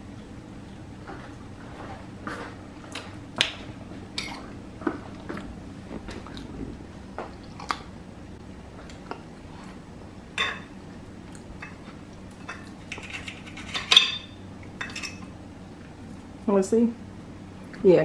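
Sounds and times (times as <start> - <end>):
cutlery clinking on a plate: 12.4 - 15.3.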